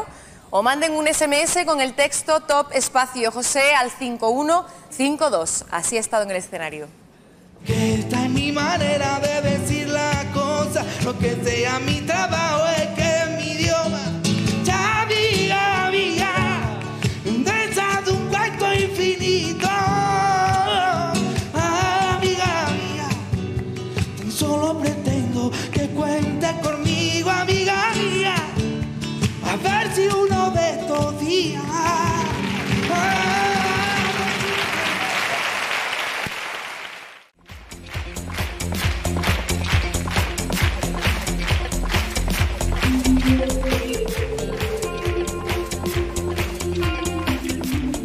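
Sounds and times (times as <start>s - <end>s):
acoustic guitars: 7.2s - 34.9s, 37.4s - 48.0s
man singing flamenco-style: 7.6s - 35.0s
audience applause: 32.0s - 47.9s.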